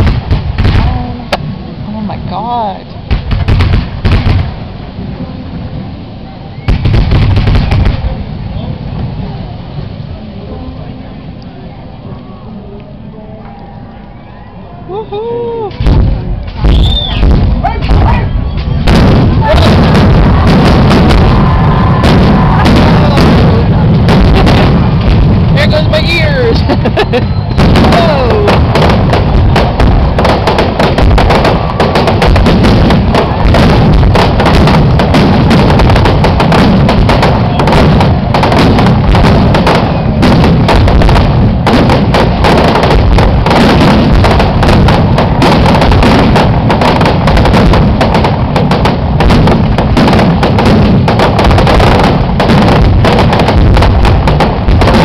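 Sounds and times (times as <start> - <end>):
fireworks shell bursts booming: 3.0 - 4.7, 6.6 - 8.2, 15.7 - 55.0.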